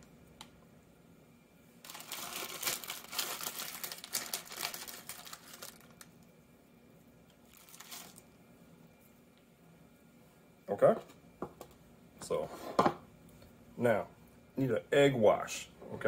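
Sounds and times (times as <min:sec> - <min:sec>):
plastic pack crinkling: 0:01.8 - 0:06.2, 0:07.5 - 0:08.3.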